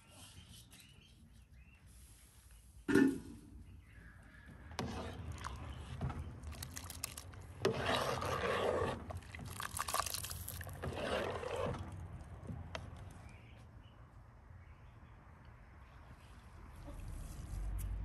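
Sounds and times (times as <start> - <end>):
ladle scraping and clinking pot: 4.7 - 12.0
milk swishing: 4.7 - 12.2.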